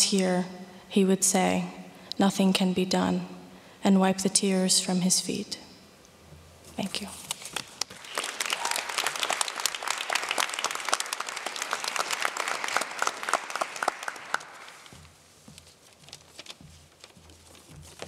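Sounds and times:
audience applauding: 7.8s - 14.9s.

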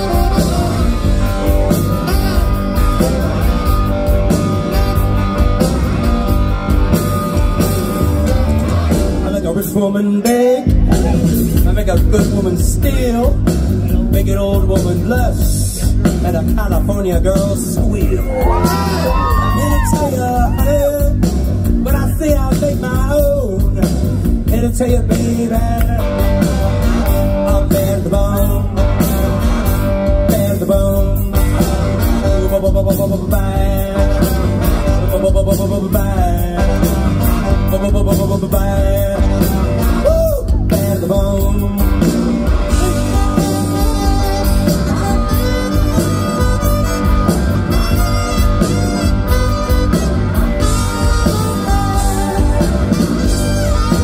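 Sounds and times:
electric guitar lead bending: 0.0s - 9.7s, 25.0s - 54.0s
blues-rock band playing: 0.0s - 54.0s.

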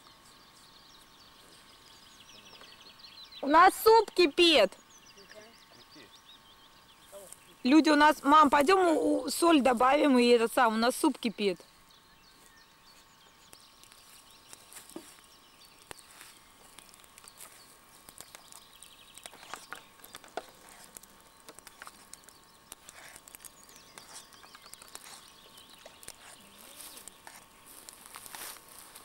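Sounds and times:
campfire crackling: 13.3s - 29.0s.

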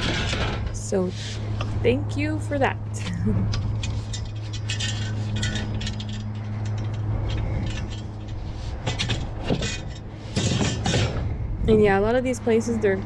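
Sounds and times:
steady low hum: 0.0s - 13.0s
metal tubes clinking and rattling: 3.5s - 11.2s.

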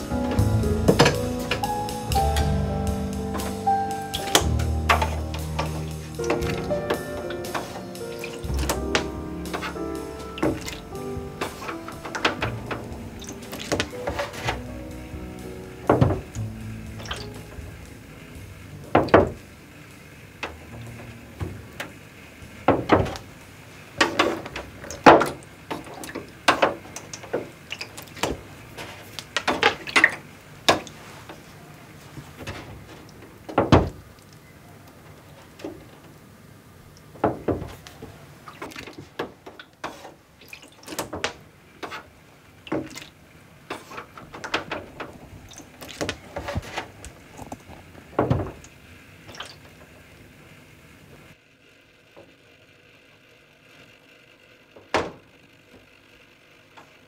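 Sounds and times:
liquid splashing in a tray: 38.5s - 39.8s, 40.4s - 41.4s, 42.7s - 43.2s.

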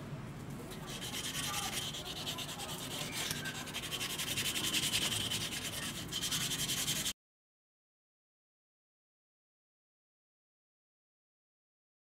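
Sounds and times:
sandpaper scrubbing metal: 0.8s - 7.1s.

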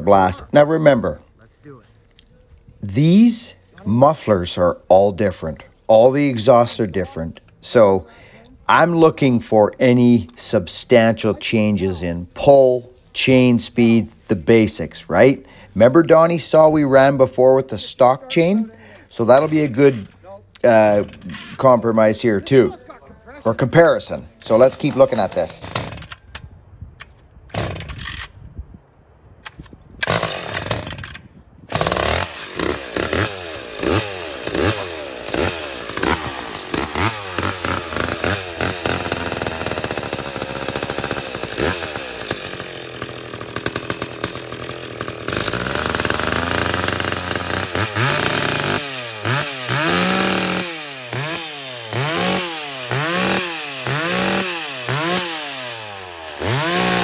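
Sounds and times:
chainsaw revving: 8.7s - 22.8s, 23.4s - 26.2s, 27.6s - 28.2s, 30.0s - 57.0s.

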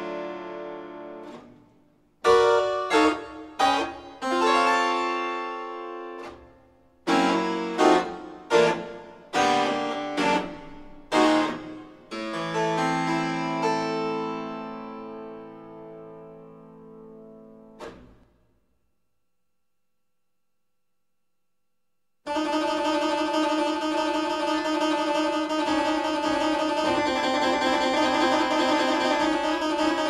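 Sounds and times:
harpsichord chords: 22.3s - 30.0s.

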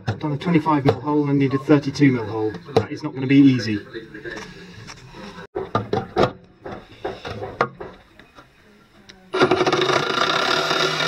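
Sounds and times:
power drill cutting metal: 9.4s - 11.0s.

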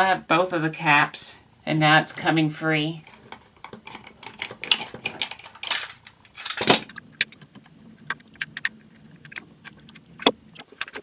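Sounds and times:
plastic toy parts clicking: 3.0s - 7.5s, 8.1s - 11.0s
scraping rustles: 3.0s - 8.0s.

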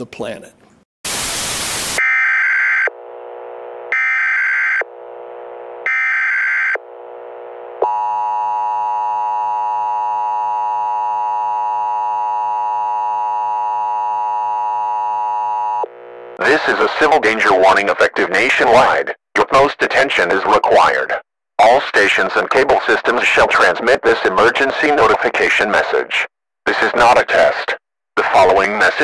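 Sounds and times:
tv static burst: 1.1s - 7.6s, 16.4s - 17.6s.

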